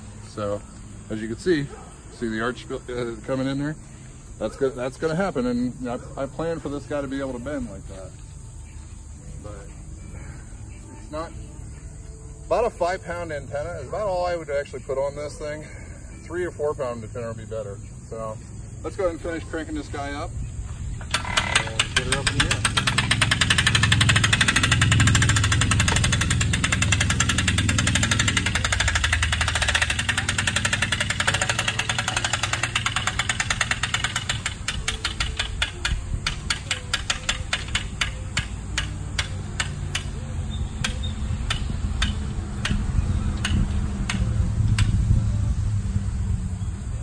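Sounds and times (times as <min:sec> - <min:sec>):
hand-crank winch clicking: 0:21.0 - 0:45.0.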